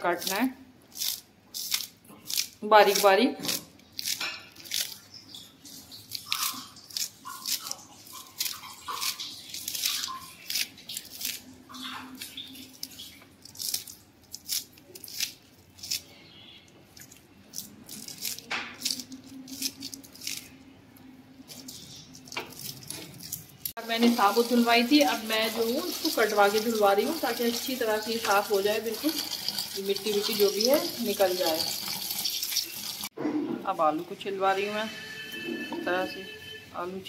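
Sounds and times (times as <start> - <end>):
knife slicing spring onions: 0.0 - 5.0, 6.1 - 12.4.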